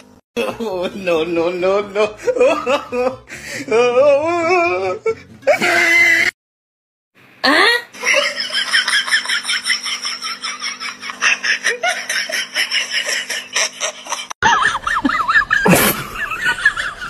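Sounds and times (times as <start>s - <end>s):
fast repeated laughter: 8.0s - 17.0s.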